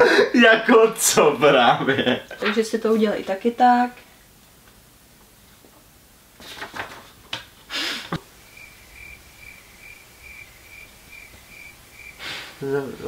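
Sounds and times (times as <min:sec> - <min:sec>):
brief rustles and clicks: 0:06.4 - 0:07.5
cricket chirping: 0:08.2 - 0:13.0.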